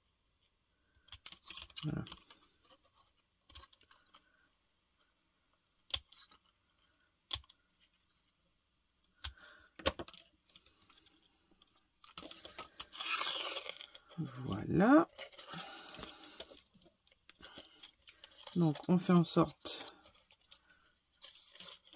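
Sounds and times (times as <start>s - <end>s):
paper and cardboard rustling: 12.0s - 21.9s.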